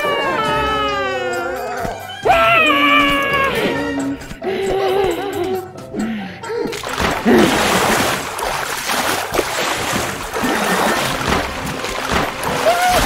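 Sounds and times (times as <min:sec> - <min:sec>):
cartoon water rushing splash: 0:06.9 - 0:13.0.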